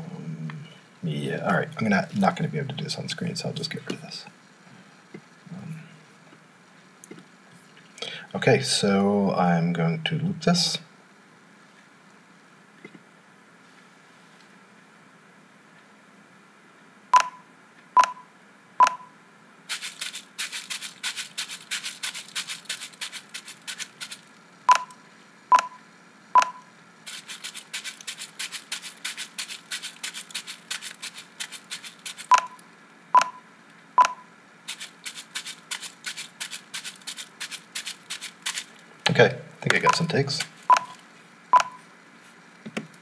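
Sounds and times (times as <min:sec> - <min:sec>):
short cue beeps: 0:17.2 - 0:19.1, 0:24.7 - 0:25.8, 0:26.4 - 0:26.7, 0:32.3 - 0:32.6, 0:33.2 - 0:34.3, 0:39.8 - 0:40.1, 0:40.7 - 0:41.0, 0:41.6 - 0:41.8.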